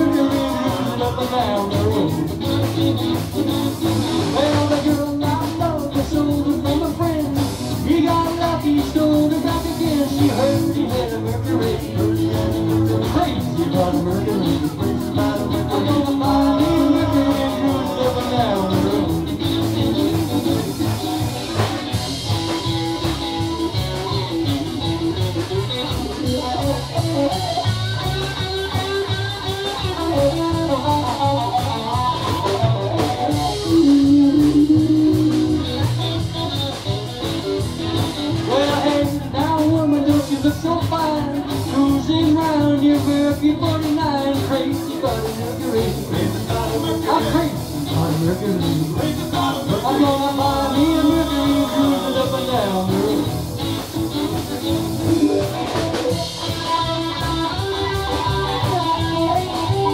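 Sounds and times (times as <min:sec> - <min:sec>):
man singing: 0:00.0 - 0:24.9, 0:29.0 - 0:53.9
electric guitar: 0:00.0 - 0:59.9
plucked upright double bass: 0:00.0 - 0:59.9.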